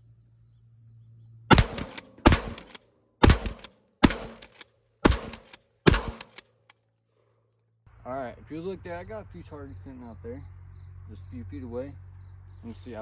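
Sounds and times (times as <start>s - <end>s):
shotgun shots: 1.5s - 6.5s
shotgun pump action: 1.5s - 6.8s.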